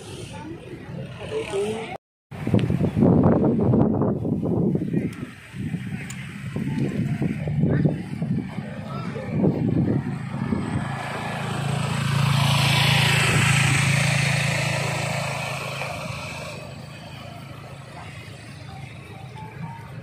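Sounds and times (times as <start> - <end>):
motorcycle passing by: 0.2 - 2.0, 5.6 - 20.0.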